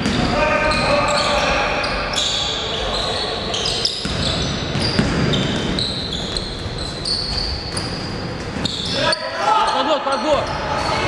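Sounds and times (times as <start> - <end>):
shoes squeaking: 0.0 - 11.0
basketball bouncing on floor: 4.0 - 6.4.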